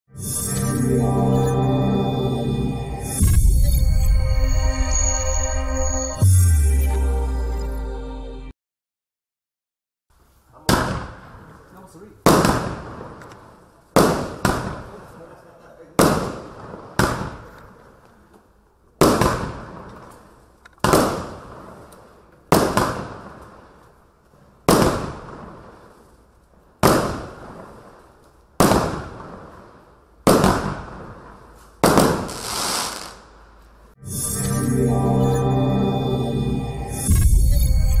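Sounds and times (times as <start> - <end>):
rushing sound: 0.1 - 7.6
firework bangs: 10.6 - 15.2, 15.9 - 17.9, 19.0 - 24.0, 24.6 - 33.4.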